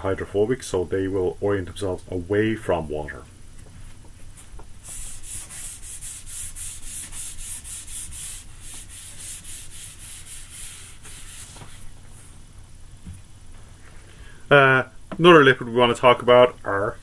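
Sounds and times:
eraser scrubbing whiteboard: 4.8 - 11.9.

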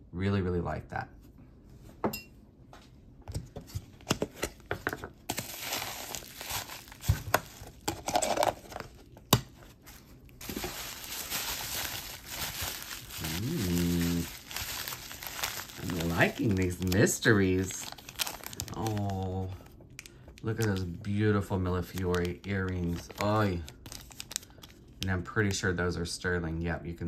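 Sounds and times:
packing wrap crinkling: 5.3 - 25.2.

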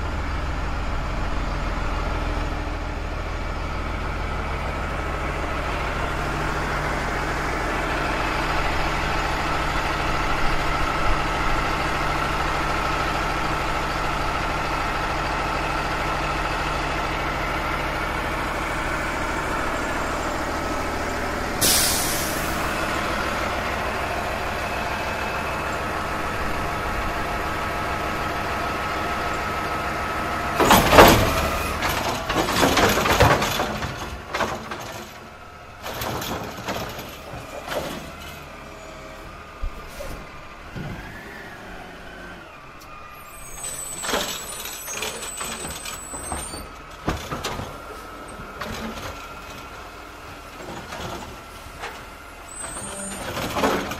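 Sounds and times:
garbage truck engine running: 0.0 - 53.9
air brake hiss: 21.6 - 22.7
loud metallic clatter: 30.6 - 35.2.

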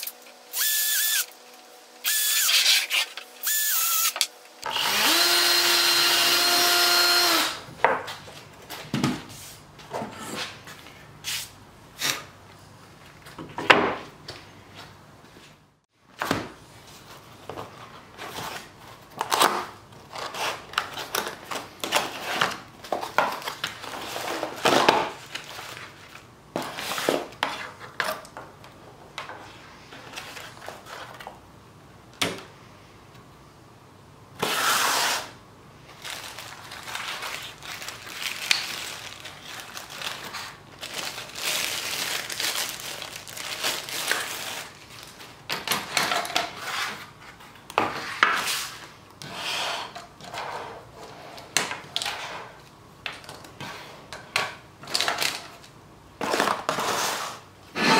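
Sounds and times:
cardboard rustling and scraping: 16.2 - 28.2, 29.3 - 31.4, 35.9 - 52.6
plastic bag crinkling: 35.9 - 45.4.

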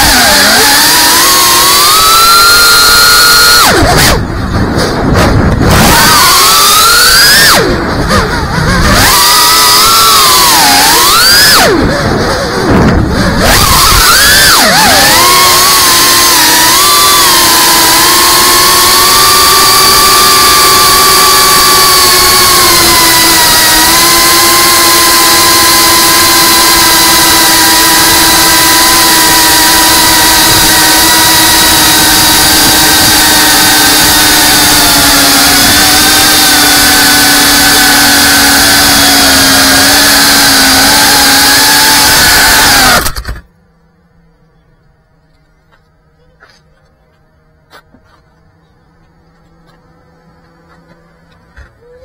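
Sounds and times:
drone motors and propellers whining: 0.0 - 52.0.

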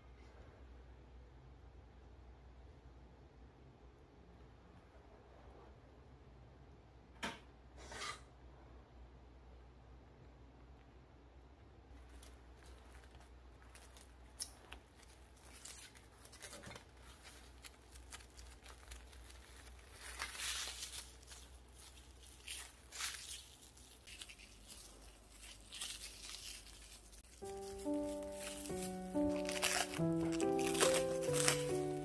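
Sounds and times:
plastic cling wrap crinkling: 11.9 - 32.0.

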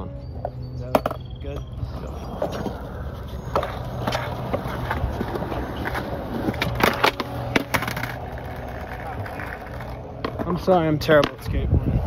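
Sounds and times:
skateboard wheels rolling on concrete: 0.3 - 12.0
skateboard deck clacking: 2.2 - 11.5.

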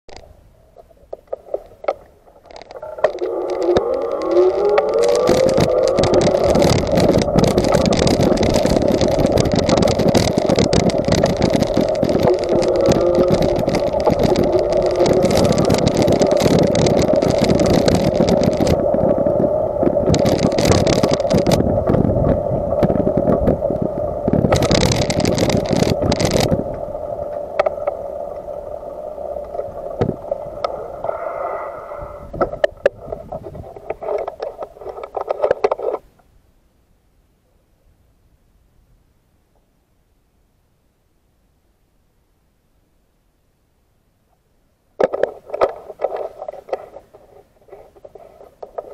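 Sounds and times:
bicycle rolling over wooden boards: 0.8 - 31.2, 45.0 - 48.9
bicycle clicks and knocks: 1.2 - 19.0, 20.0 - 21.6, 24.4 - 26.6.

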